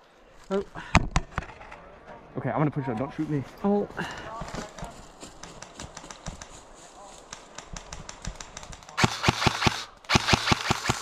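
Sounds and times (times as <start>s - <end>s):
footsteps on dry leaves: 4.4s - 7.4s
airsoft gun rapid fire: 7.5s - 11.0s.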